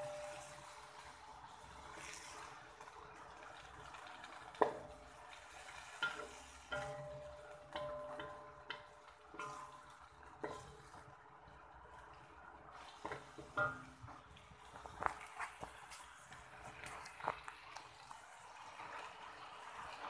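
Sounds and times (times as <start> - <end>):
wooden spatula knocking on a wok: 4.5 - 5.0, 6.0 - 11.1, 13.0 - 14.2.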